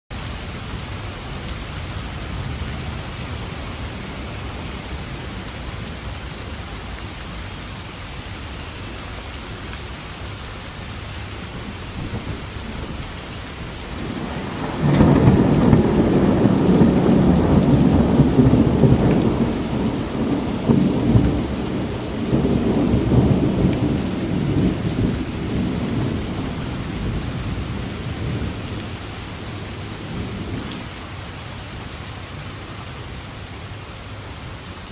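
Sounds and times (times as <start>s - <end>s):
steady rain falling: 0.1s - 34.9s
loud rumbling thunderclap: 11.6s - 30.9s.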